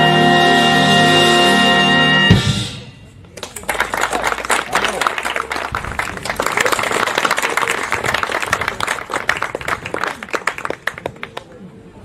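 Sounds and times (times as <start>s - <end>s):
small crowd clapping: 3.4s - 11.7s.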